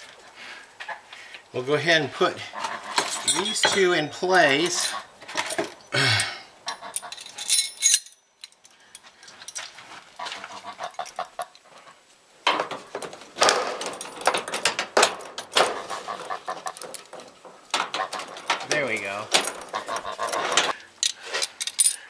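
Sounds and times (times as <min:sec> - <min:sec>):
metal trolleys clinking and rattling: 0:02.9 - 0:05.8, 0:06.7 - 0:08.6, 0:12.5 - 0:22.0.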